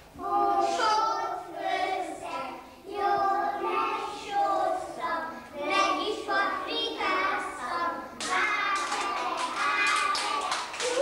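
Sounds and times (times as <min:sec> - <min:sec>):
children singing together: 0:00.1 - 0:11.0.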